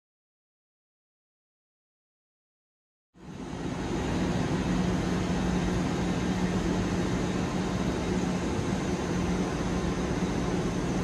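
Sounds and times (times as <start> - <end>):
low train engine hum: 3.2 - 11.0.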